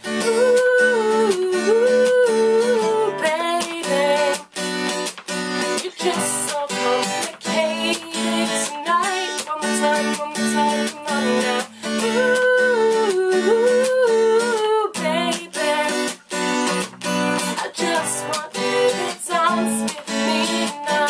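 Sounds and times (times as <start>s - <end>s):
acoustic guitar strumming: 0.0s - 21.0s
woman singing: 0.0s - 21.0s.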